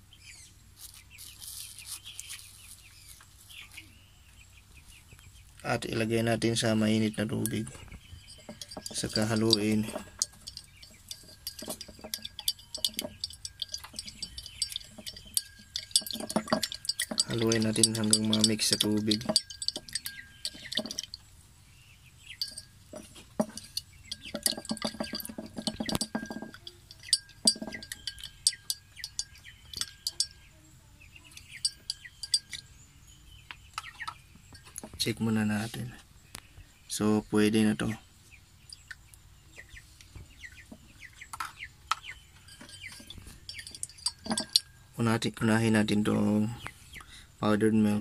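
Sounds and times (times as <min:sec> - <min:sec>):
teaspoon clinking against glass: 0:06.9 - 0:21.3, 0:22.3 - 0:30.5, 0:31.3 - 0:32.8, 0:41.9 - 0:45.2
chickens clucking: 0:22.3 - 0:32.6, 0:33.5 - 0:35.9.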